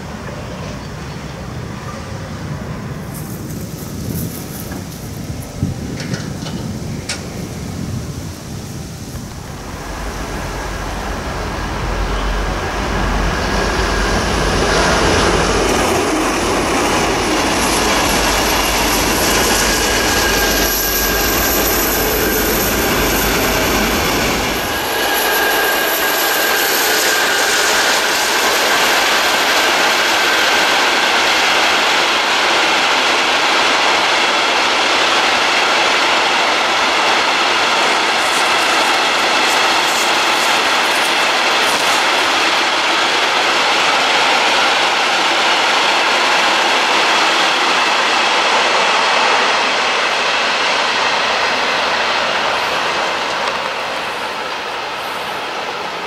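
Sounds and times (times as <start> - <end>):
train wheel clatter: 3.0 - 7.8, 9.2 - 55.7
diesel locomotive rumble: 9.1 - 30.3, 35.3 - 45.3.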